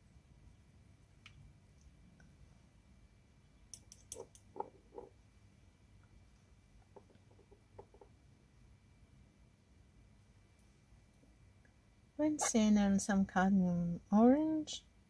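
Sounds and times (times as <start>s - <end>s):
light clicks and taps: 3.7s - 5.1s.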